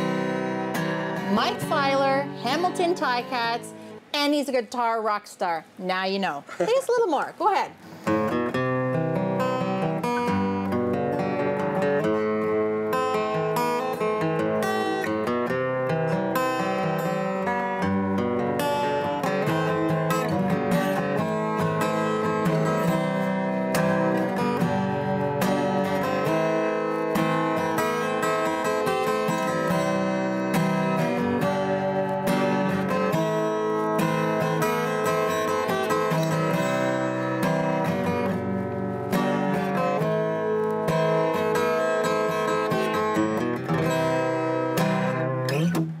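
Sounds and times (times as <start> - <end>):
acoustic guitar strumming: 0.0 - 46.0.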